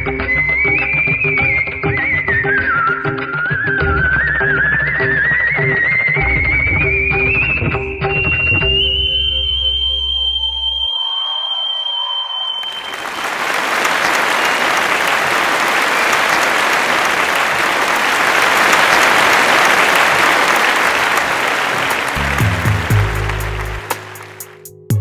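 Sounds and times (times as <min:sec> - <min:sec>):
music: 0:00.0 - 0:10.9, 0:18.0 - 0:25.0
high whistled note: 0:07.3 - 0:13.2
audience applause: 0:11.0 - 0:24.7.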